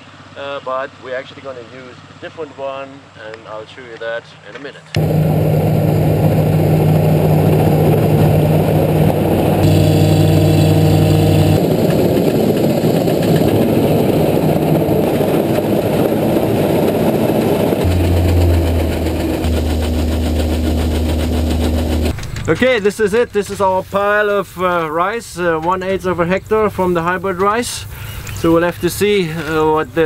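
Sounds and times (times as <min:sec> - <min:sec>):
combine harvester engine drone: 0:05.0 - 0:22.3.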